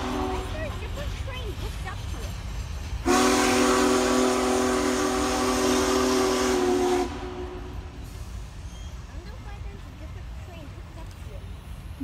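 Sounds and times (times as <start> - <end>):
steam locomotive whistle: 0.0 - 0.6, 3.0 - 8.0
train rumbling: 0.0 - 12.0.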